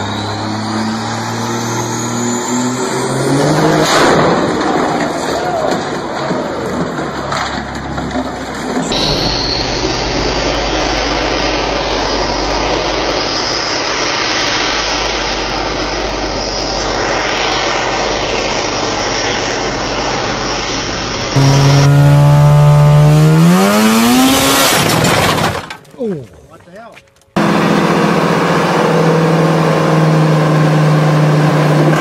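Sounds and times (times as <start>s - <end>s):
truck diesel engine under load: 6.0s - 16.8s, 20.8s - 25.5s, 27.4s - 32.0s
high engine whine: 8.6s - 25.2s, 27.4s - 32.0s.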